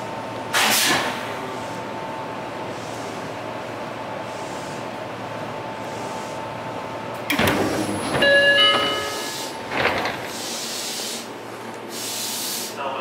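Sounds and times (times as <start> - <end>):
train hum: 0.0 - 13.0
train doors opening with air hiss: 0.5 - 1.9, 7.2 - 12.9.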